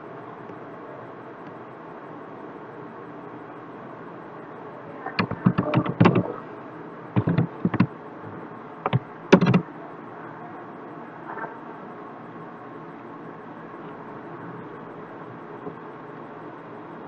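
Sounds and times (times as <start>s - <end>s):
keyboard key clicks: 5.2s - 6.3s, 7.2s - 7.9s, 8.8s - 9.6s.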